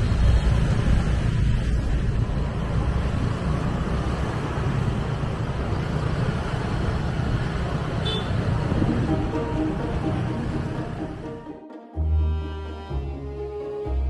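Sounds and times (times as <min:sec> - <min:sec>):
scooter engine and road rumble: 0:00.0 - 0:11.2.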